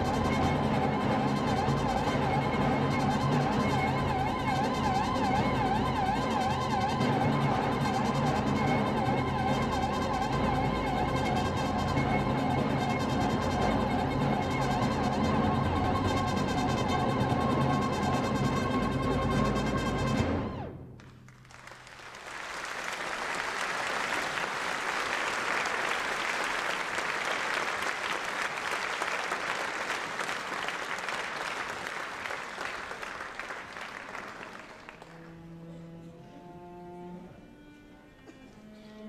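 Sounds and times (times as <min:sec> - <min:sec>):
orchestra low string notes: 0:00.0 - 0:39.0
audience applauding: 0:21.0 - 0:35.6.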